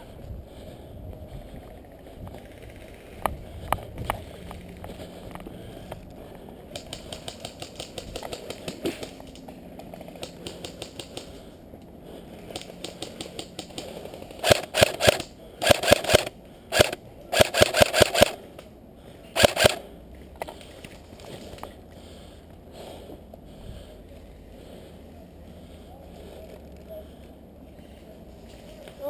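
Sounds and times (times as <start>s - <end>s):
faint rapid clicking: 1.6s - 11.4s
airsoft rifle bursts: 12.9s - 18.4s, 19.4s - 19.9s.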